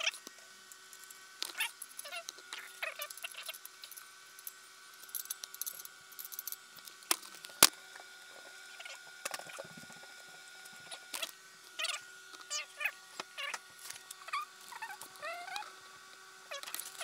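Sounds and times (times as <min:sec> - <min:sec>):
metal and plastic parts clicking: 0:01.0 - 0:07.7.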